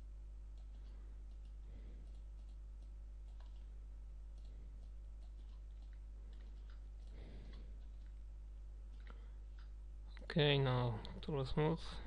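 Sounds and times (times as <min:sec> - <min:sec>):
low electrical hum: 0:00.0 - 0:12.0
computer mouse clicking: 0:00.5 - 0:03.7, 0:04.3 - 0:08.2.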